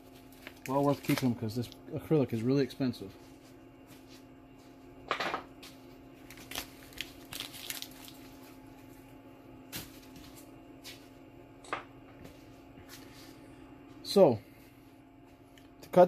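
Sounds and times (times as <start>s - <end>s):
paper rustling and crinkling: 0.0s - 1.8s, 6.2s - 8.6s
faint steady hum: 0.0s - 16.0s.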